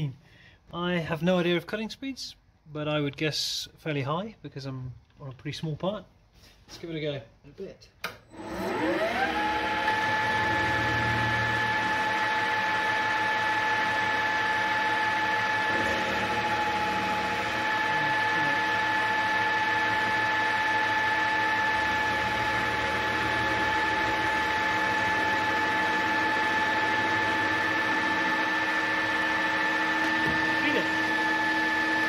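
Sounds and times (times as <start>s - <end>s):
lathe motor whine: 8.3s - 32.0s
lathe tool cutting metal: 8.4s - 32.0s.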